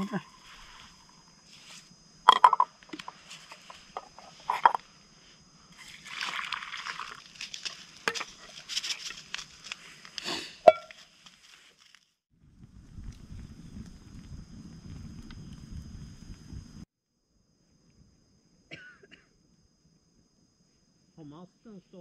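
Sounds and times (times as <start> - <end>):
metal pots clinking: 2.3 - 2.7, 10.7 - 10.9.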